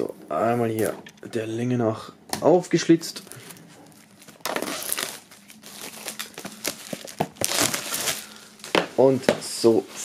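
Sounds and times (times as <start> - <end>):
plastic film crinkling: 3.1 - 10.0.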